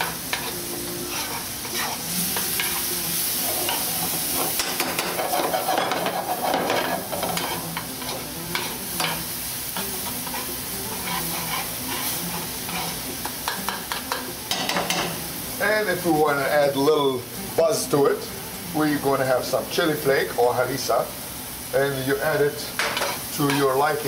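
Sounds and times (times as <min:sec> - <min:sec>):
food sizzling in a pan: 0:00.0 - 0:24.0.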